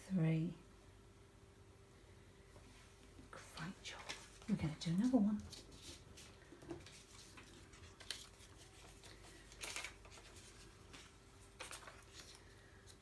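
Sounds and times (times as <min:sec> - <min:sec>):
tissue and paper rustling: 0:03.9 - 0:13.0.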